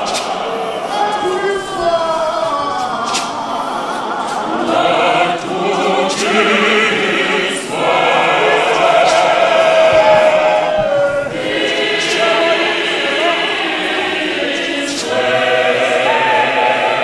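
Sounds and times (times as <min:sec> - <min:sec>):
men's choir singing a hymn: 0:00.0 - 0:17.0.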